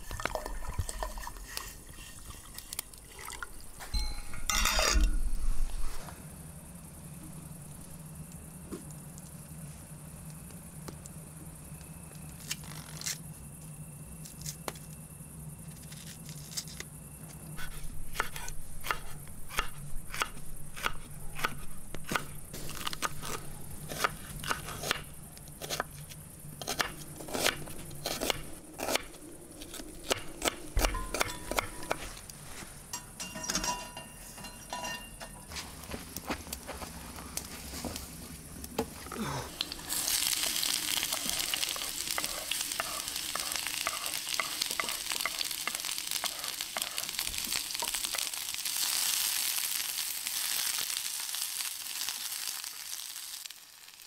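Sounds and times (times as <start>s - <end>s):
low hum: 3.4s - 12.3s.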